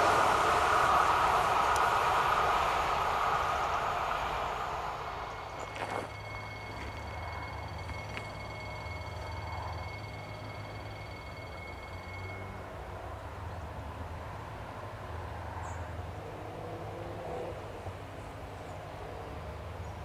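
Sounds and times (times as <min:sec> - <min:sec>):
low rumble: 0:00.0 - 0:14.9
high-pitched whine: 0:00.0 - 0:16.1.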